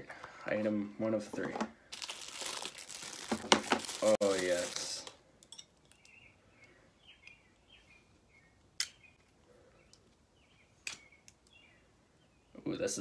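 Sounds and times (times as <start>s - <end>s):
faint bird chirps: 5.9s - 12.9s.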